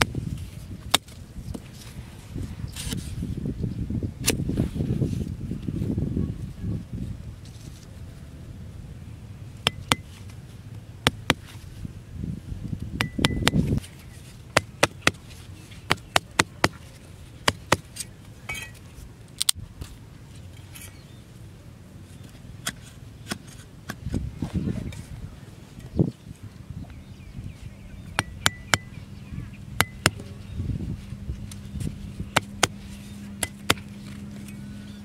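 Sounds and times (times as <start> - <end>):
cleaver chopping wooden sticks: 9.6 - 10.1, 14.5 - 16.8, 17.4 - 18.1, 29.8 - 30.3, 32.3 - 32.8, 33.4 - 33.9.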